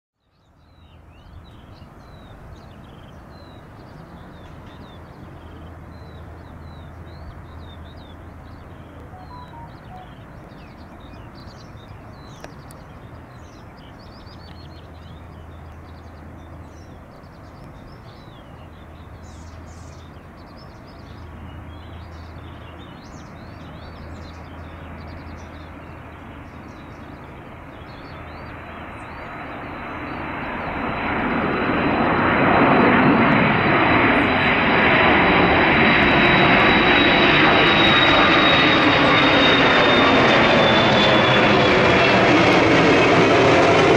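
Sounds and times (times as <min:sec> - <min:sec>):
small birds chirping: 0:00.2 - 0:31.1
jet engines rumbling: 0:01.3 - 0:13.8, 0:14.7 - 0:43.9
high jet whine: 0:09.0 - 0:10.6, 0:31.0 - 0:43.9.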